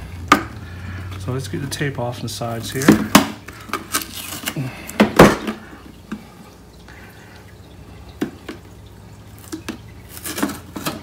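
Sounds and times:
tape scratching: 3.6s - 4.6s.

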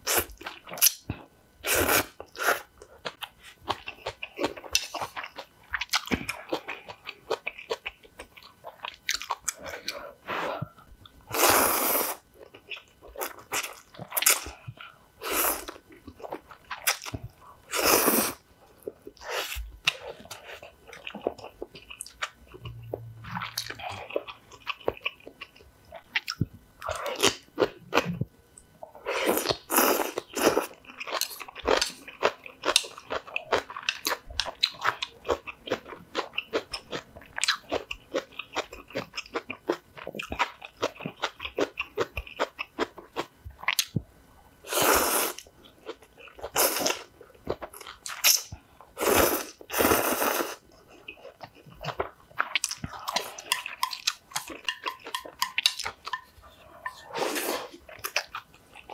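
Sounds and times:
slurping noodles: 49.0s - 50.6s.

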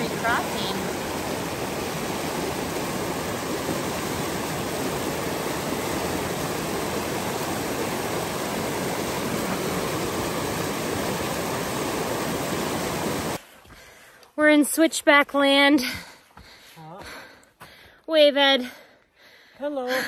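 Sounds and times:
creek rushing: 0.0s - 13.4s.

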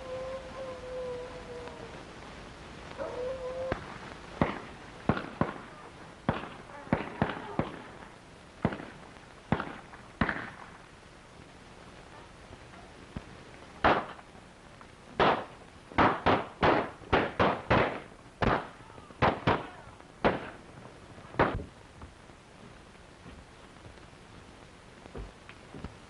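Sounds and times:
gunshots: 4.4s - 5.7s, 6.3s - 7.9s, 8.6s - 10.6s, 13.8s - 14.2s, 15.2s - 20.6s.

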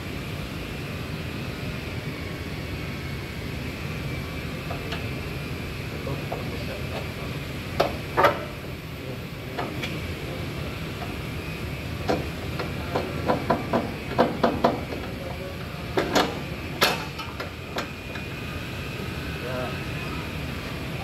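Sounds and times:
workshop background noise: 1.1s - 21.0s.

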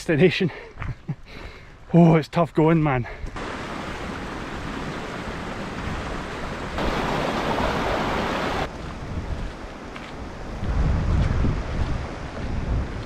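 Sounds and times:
stream running over stones: 3.4s - 8.9s
wind on microphone: 3.4s - 13.0s.

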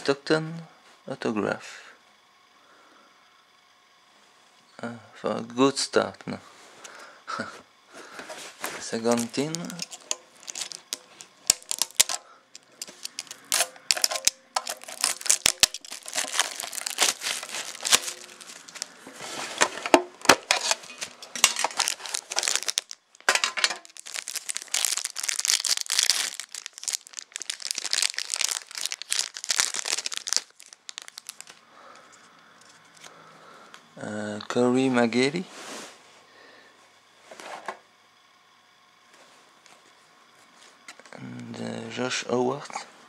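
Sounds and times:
plastic shrink wrap crinkling: 8.6s - 31.6s.

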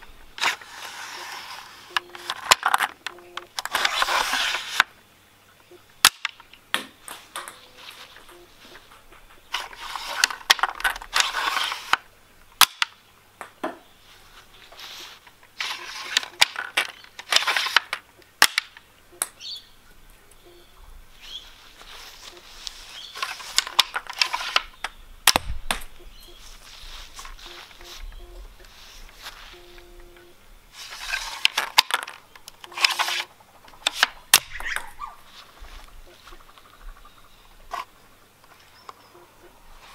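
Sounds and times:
toy gun handling rustles: 0.4s - 4.9s, 7.8s - 12.9s, 14.7s - 18.8s, 21.2s - 25.4s, 30.8s - 36.4s
sharp wooden clacks and snaps: 12.6s - 13.8s, 15.2s - 19.4s, 23.2s - 26.1s
wooden clatter: 31.0s - 35.0s.

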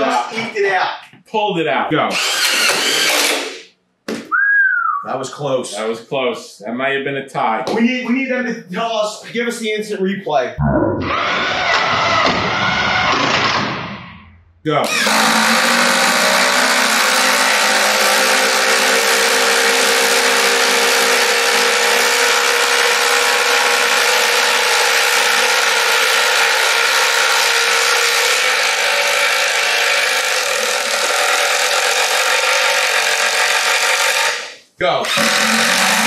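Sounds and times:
impact drivers driving screws: 2.1s - 3.6s, 14.8s - 36.0s.

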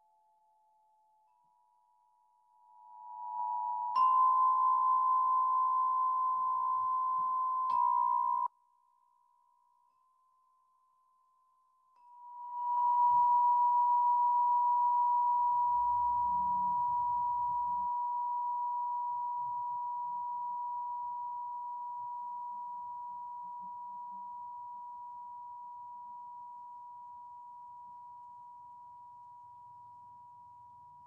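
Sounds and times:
struck singing bowl ringing: 2.9s - 8.5s.

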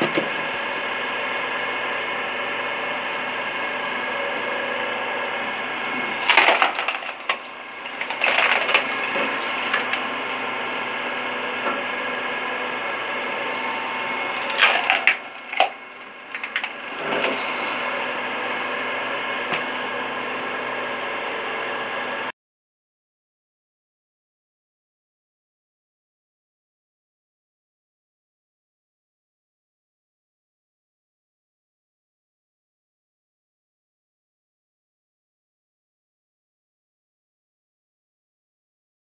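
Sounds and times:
electric motor humming: 0.3s - 22.2s
log cracking and splintering: 5.9s - 10.5s, 13.7s - 18.2s.

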